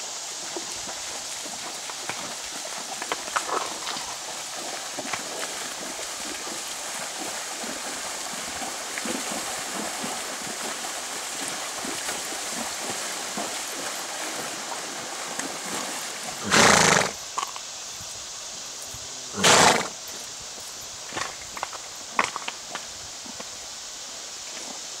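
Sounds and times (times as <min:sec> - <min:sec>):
rushing water: 0:00.0 - 0:25.0
legs splashing in water: 0:00.8 - 0:17.6.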